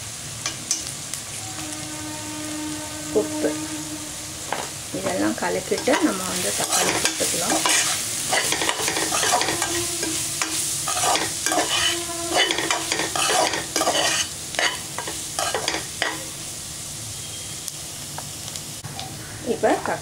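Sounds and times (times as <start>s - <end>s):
frying sizzle: 0.0s - 20.0s
spatula scraping metal pot: 4.5s - 16.2s.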